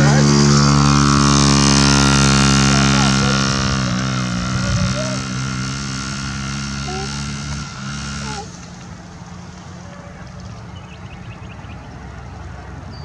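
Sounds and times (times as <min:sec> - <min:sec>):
two-stroke motorbike engine: 0:00.0 - 0:11.4.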